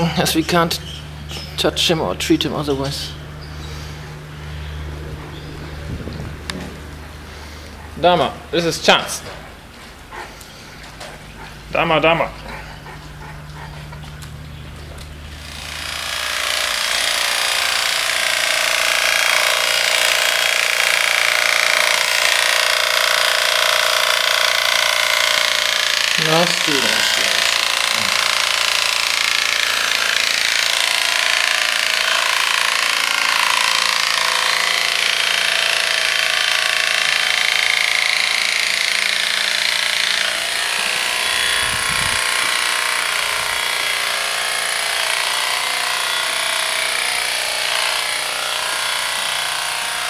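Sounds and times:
electric hair clippers running: 0:15.0 - 0:50.0.

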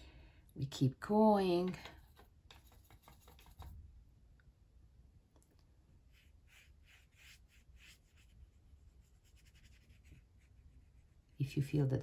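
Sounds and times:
brush strokes on paper: 0:06.0 - 0:11.4.

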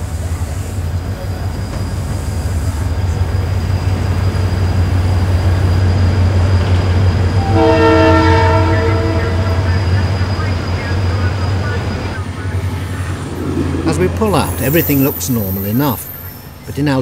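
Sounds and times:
train engine humming: 0:00.0 - 0:17.0
train horn: 0:07.4 - 0:11.9.

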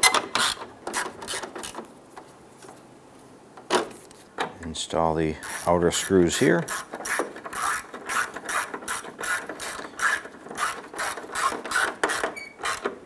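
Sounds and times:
socket ratchet clicking: 0:05.4 - 0:13.0.

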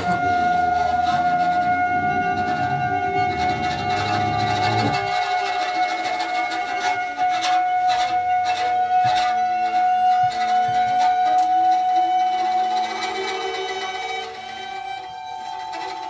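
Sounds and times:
soft sustained low notes: 0:00.0 - 0:05.3
high held note: 0:00.0 - 0:09.0
scratchy rasping strokes: 0:00.0 - 0:16.0.

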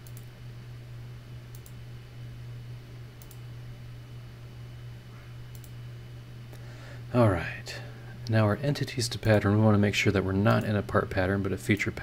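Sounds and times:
computer mouse clicks: 0:00.0 - 0:00.3, 0:01.5 - 0:01.8, 0:03.2 - 0:03.4, 0:05.5 - 0:05.8
low electrical hum: 0:00.0 - 0:12.0.

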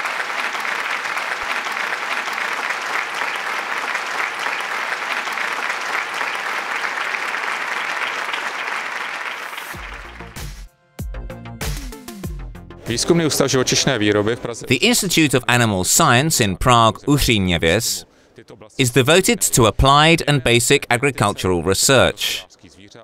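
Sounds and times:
audience applauding: 0:00.0 - 0:10.7, 0:18.8 - 0:22.4.

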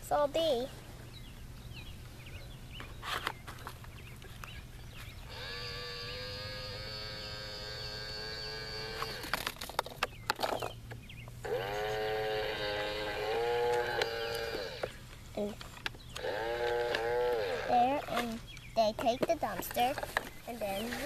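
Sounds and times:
toy truck motor whining: 0:05.3 - 0:09.5, 0:11.5 - 0:15.0, 0:16.2 - 0:18.2
plastic clicks and rattles: 0:09.0 - 0:10.8.

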